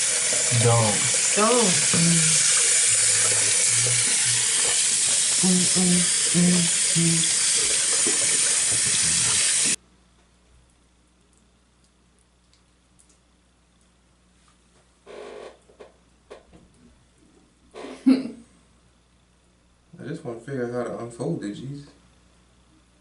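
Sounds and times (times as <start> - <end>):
tap running into a sink: 6.1 - 9.8.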